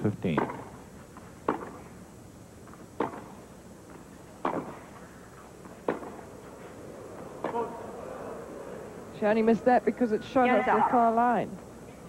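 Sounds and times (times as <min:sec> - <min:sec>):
tennis ball hit by rackets: 0:00.3 - 0:00.8, 0:01.4 - 0:01.9, 0:02.6 - 0:05.0, 0:05.6 - 0:08.0.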